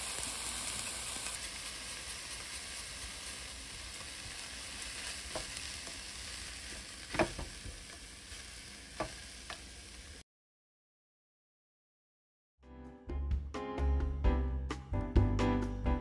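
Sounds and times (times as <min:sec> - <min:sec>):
food sizzling in a pan: 0:00.0 - 0:10.2.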